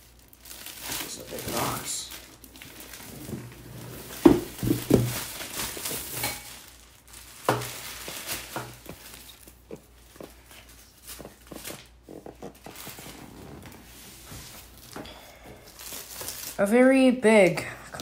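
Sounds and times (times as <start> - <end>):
plastic shrink-wrap crinkling: 0.0 - 16.8
cardboard box being opened: 2.8 - 6.2.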